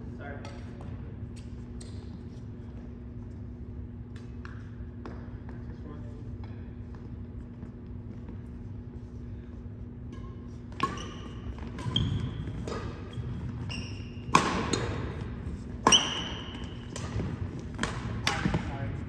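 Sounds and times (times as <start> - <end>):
rackets hitting shuttlecock: 10.0 - 18.9
sneakers squeaking on hardwood: 10.3 - 17.8.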